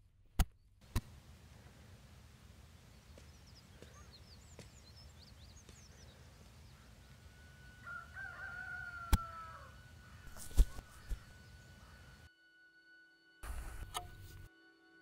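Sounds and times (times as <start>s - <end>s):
quiet outdoor ambience: 0.0s - 12.3s, 13.4s - 14.5s
rooster crowing: 6.7s - 11.0s
sharp click: 13.4s - 14.5s.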